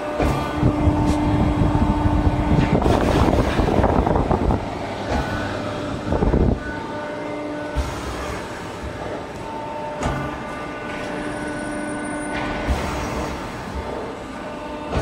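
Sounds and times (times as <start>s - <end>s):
machine motor hum: 0.0s - 15.0s
rushing rattling noise: 0.6s - 6.6s.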